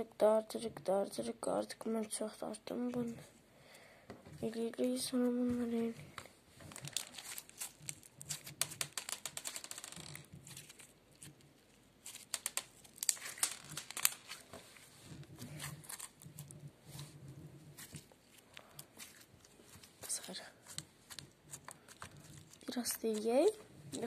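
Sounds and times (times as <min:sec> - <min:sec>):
slime crackling and popping: 0:06.7 - 0:14.5, 0:15.3 - 0:17.1, 0:17.8 - 0:24.0.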